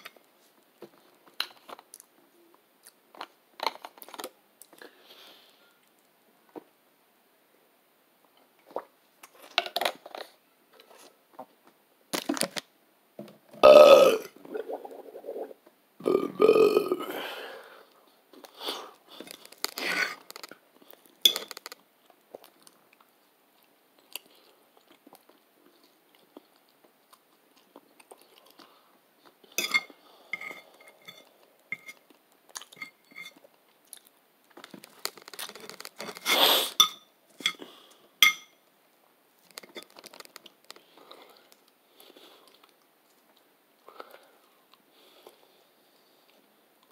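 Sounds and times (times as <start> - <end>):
loud burps: 13.6 - 17.2
man chewing food: 19.2 - 29.6, 30.6 - 36.7, 39.4 - 46.9.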